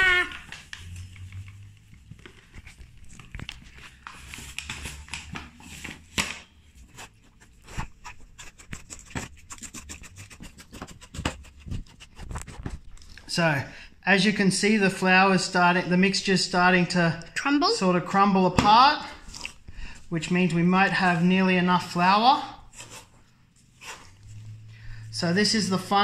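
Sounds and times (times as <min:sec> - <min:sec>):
wooden spoon scraping a bowl: 0:22.7 - 0:25.4.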